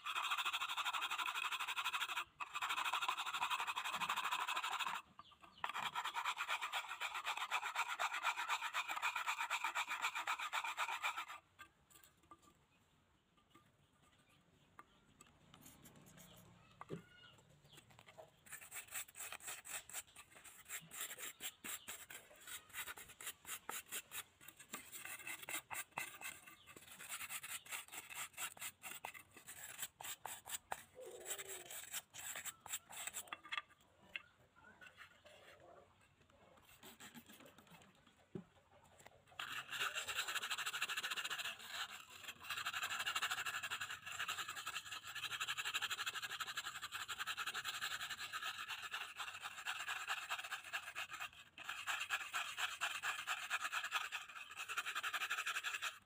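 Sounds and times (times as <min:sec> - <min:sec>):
brush scrubbing a metal pan: 0:05.6 - 0:11.4, 0:18.4 - 0:33.4, 0:39.4 - 0:56.0.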